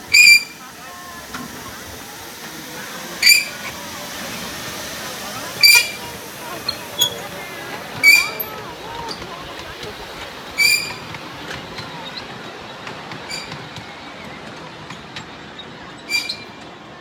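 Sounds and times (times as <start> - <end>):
train wheels rumbling on rail: 0.0 - 17.0
high-pitched squeals: 0.1 - 9.2.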